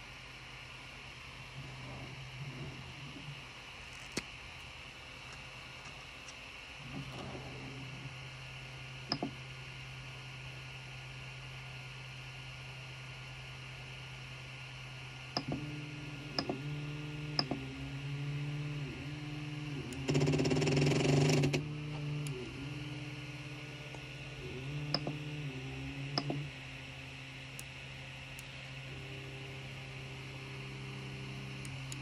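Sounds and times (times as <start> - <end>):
stepper motors whining: 15.4 - 26.8, 28.4 - 32.0.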